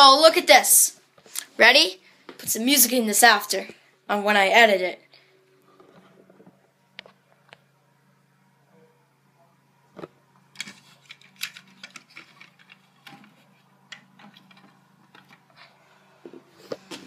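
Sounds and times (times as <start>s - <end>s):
plastic bricks clicking and clattering: 10.6s - 15.5s.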